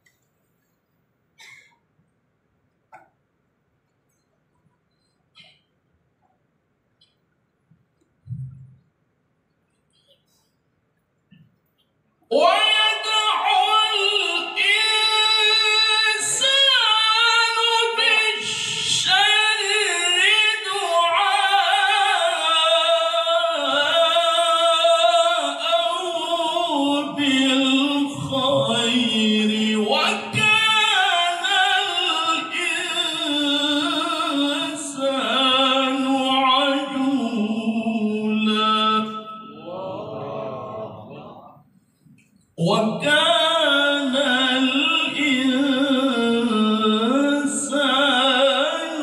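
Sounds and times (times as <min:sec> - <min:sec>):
man reciting melodically over loudspeakers: 0:12.2 - 0:49.0.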